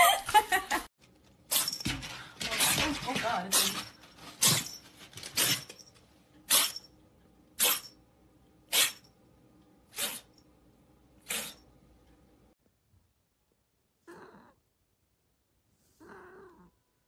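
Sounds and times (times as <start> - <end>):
kitten sneezing: 6.5 - 6.8, 7.6 - 7.8, 8.7 - 9.0, 9.9 - 10.3, 11.2 - 11.6.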